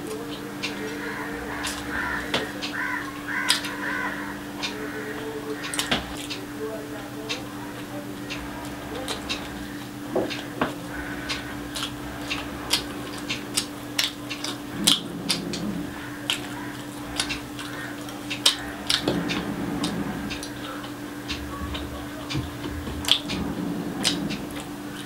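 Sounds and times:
low hum: 0:00.0 - 0:25.0
chewing and lip-smacking: 0:07.3 - 0:23.4.

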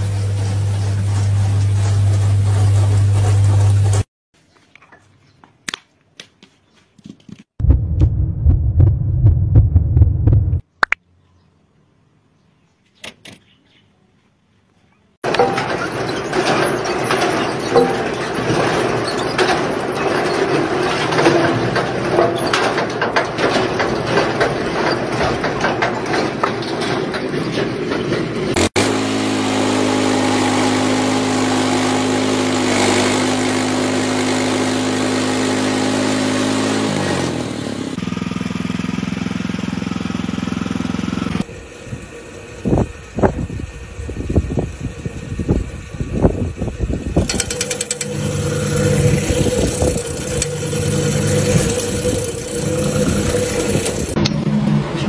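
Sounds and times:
steady engine drone: 0:28.3 - 0:55.0.

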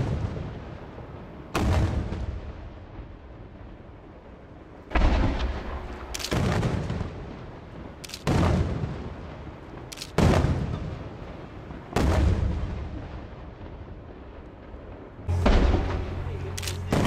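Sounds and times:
firework shells bursting: 0:04.9 - 0:07.0.

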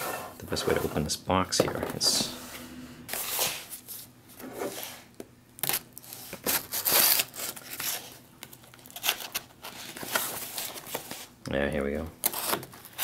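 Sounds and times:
knife slitting packing tape: 0:05.6 - 0:08.1, 0:12.2 - 0:13.0
cardboard scraping and tearing: 0:06.4 - 0:08.2.

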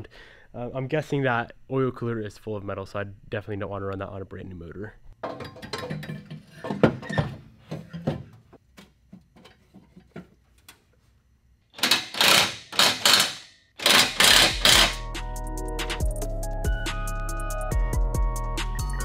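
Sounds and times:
loud rattling bursts: 0:11.8 - 0:15.0
ratchet clicking: 0:11.8 - 0:15.1.

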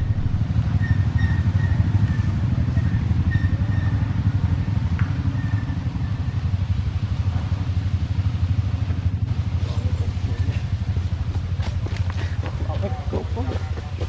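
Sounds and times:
small engine running: 0:00.0 - 0:14.0.

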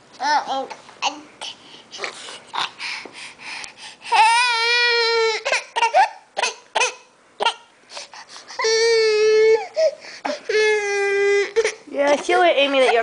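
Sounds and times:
baby crying: 0:04.1 - 0:07.6, 0:08.5 - 0:11.9.

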